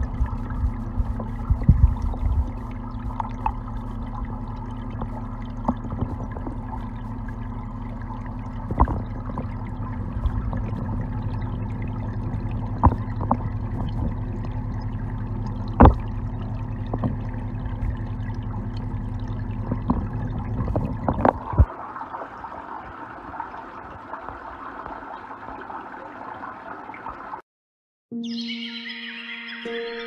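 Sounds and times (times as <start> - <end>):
steady low hum: 0.0 - 21.9
muffled underwater pond noise: 0.0 - 27.4.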